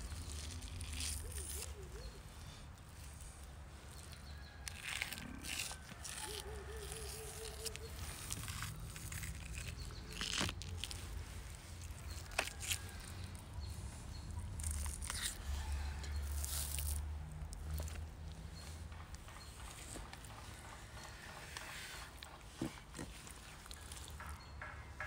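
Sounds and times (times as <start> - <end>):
membrane peeled off raw liver: 0.0 - 2.2, 4.0 - 18.0
low outdoor rumble: 0.0 - 25.0.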